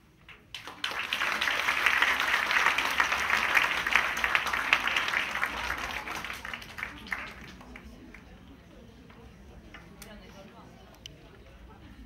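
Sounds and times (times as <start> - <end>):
audience applauding: 0.5 - 8.3.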